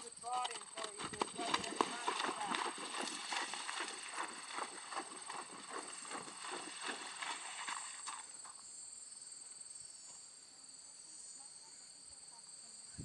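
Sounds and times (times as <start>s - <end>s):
hooves splashing through water: 0.0s - 8.6s
insects trilling: 0.0s - 13.0s.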